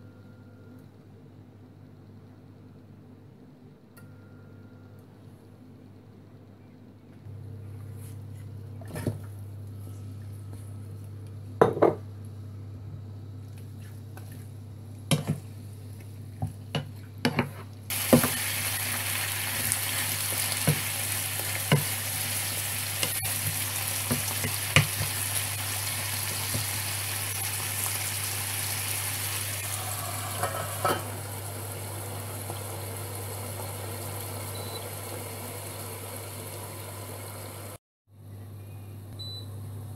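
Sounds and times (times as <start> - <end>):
steady low hum: 0.0 - 17.9
chicken sizzling in hot oil: 17.9 - 37.8.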